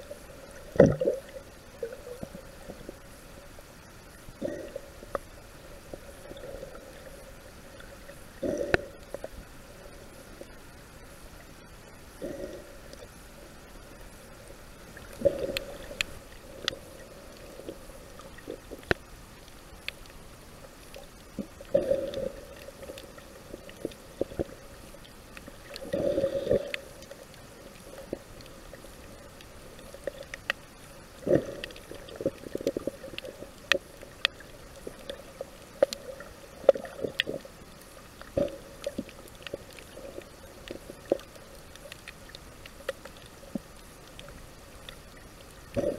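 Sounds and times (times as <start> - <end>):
underwater gurgling: 0.0 - 45.9
sharp underwater clicks: 15.0 - 17.5, 18.1 - 20.2, 20.8 - 45.9.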